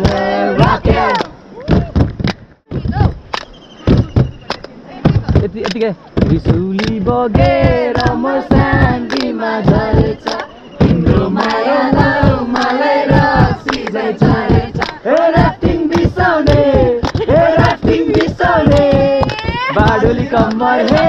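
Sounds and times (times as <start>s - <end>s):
group of people singing: 0.0s - 1.4s, 7.0s - 21.0s
steady beat of sharp hits: 3.9s - 21.0s.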